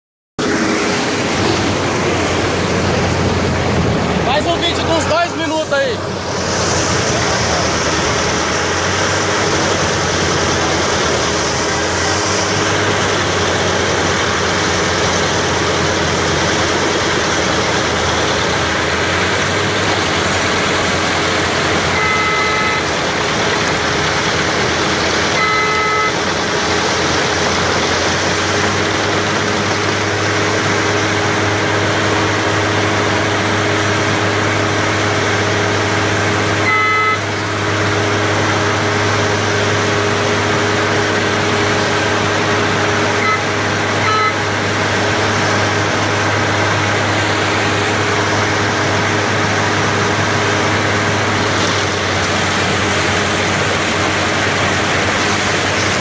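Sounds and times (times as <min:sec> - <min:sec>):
machine running with low hum: 0:00.4 - 0:56.0
short two-tone beeps: 0:21.9 - 0:22.9, 0:25.4 - 0:26.2, 0:36.6 - 0:37.3, 0:43.2 - 0:44.4.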